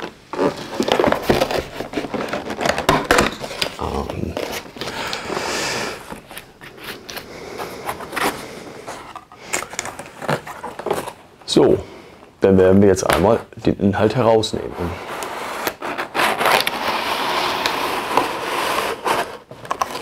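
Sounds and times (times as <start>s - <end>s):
cardboard box scraping and knocking: 0.0s - 3.8s
cardboard crinkling: 0.0s - 11.6s, 14.8s - 20.0s
sliding scrape: 3.4s - 11.2s, 14.6s - 20.0s.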